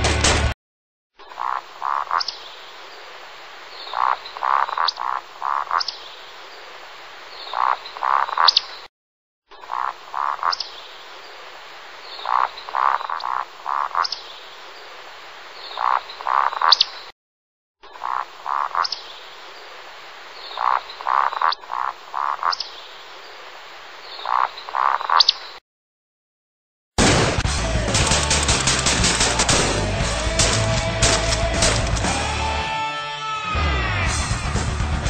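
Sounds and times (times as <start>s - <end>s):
croaking animal calls: 1.2s - 6.5s, 7.3s - 8.9s, 9.5s - 11.2s, 12.1s - 14.4s, 15.6s - 17.1s, 17.8s - 19.6s, 20.4s - 23.0s, 24.0s - 25.6s.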